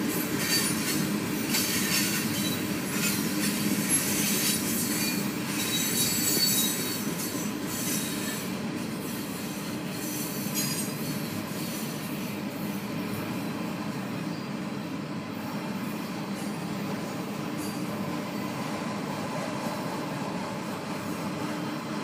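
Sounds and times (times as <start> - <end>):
train wheels rumbling on rail: 0.0 - 22.0
high wheel squeals: 0.4 - 12.8.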